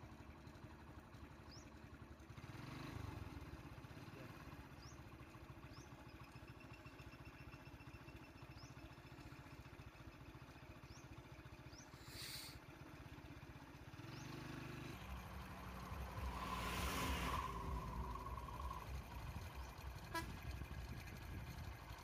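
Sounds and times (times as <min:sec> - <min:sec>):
engine rumble: 0:00.0 - 0:22.0
vehicle approaching: 0:00.4 - 0:10.2, 0:10.9 - 0:22.0
short hiss: 0:12.0 - 0:12.6.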